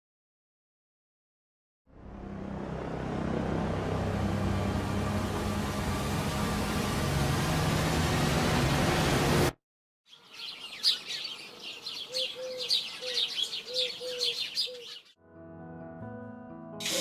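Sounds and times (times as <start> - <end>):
music: 1.9 - 9.5, 15.2 - 17.0
loud hissing drone: 2.0 - 9.6
birds chirping: 10.1 - 15.2
lower bird call: 10.1 - 15.2.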